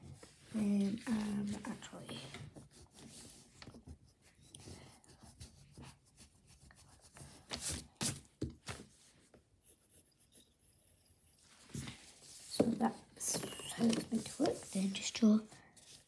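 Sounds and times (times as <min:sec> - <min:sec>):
pencil drawing on paper: 0:00.0 - 0:08.2, 0:09.0 - 0:16.0
paper rustling: 0:07.0 - 0:09.4, 0:11.5 - 0:16.0.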